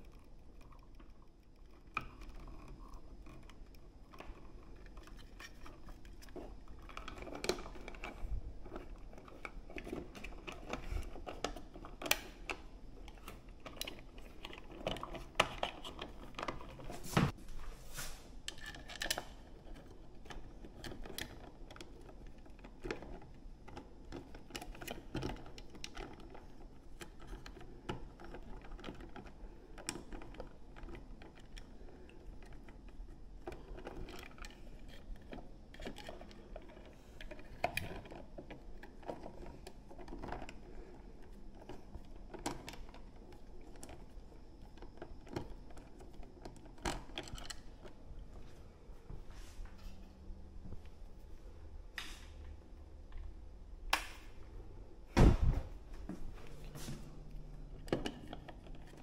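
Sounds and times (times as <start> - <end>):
wall switch clicks and scrapes: 51.9 - 52.5, 53.9 - 54.4.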